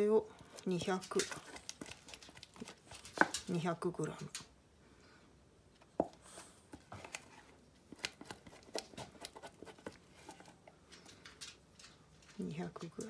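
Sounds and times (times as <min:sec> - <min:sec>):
spatula scraping plastic: 0:06.4 - 0:11.2.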